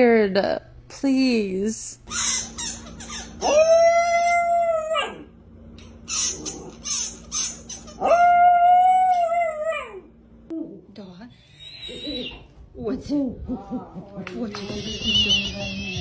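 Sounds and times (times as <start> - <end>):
dog toy squealing: 2.1 - 5.2, 6.0 - 9.2, 14.6 - 16.0.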